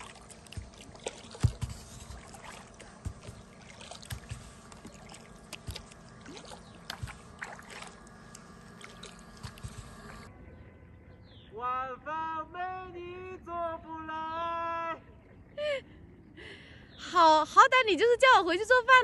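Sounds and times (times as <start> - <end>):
small splashes: 0.0 - 10.3
water lapping against hull: 0.0 - 10.3.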